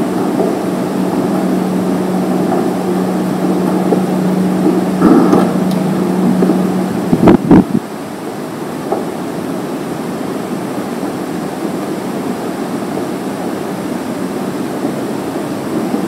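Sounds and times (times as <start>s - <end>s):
low hum: 0.0s - 16.0s
steady rushing noise: 0.0s - 16.0s
sharp knocks: 2.4s - 7.4s.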